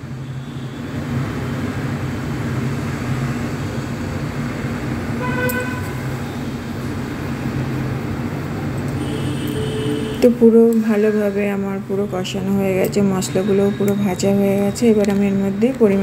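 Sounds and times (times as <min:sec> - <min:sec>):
short horn toot: 0:05.2 - 0:06.0.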